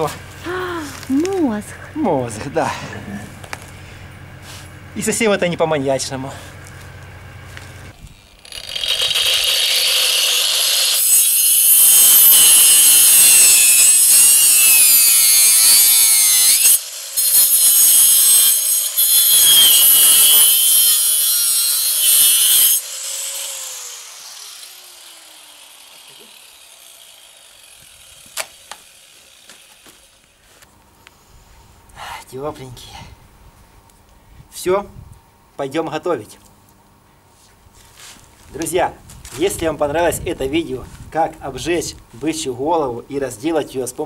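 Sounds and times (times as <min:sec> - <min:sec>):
angle grinder cutting bone: 0:06.5 - 0:30.4
grinder spinning down: 0:08.0 - 0:30.3.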